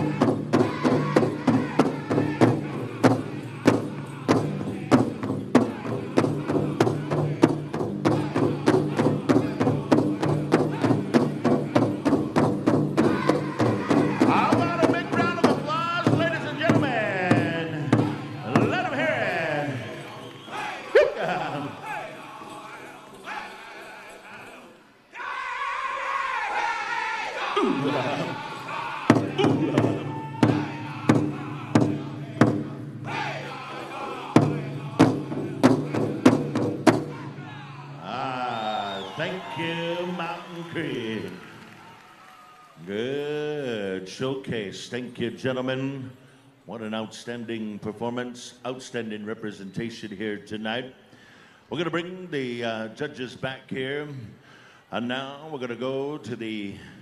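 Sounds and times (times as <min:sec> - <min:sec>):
big drum beating fast rhythm: 0:00.0 - 0:19.9, 0:27.8 - 0:37.6
men singing: 0:00.0 - 0:41.4.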